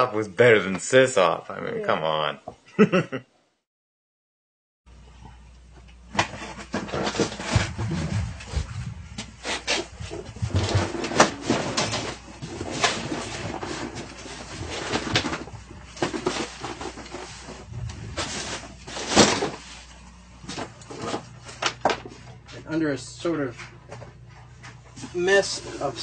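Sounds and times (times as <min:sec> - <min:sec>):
objects knocking together: 0:06.1 - 0:19.7
objects scraping: 0:06.2 - 0:22.6.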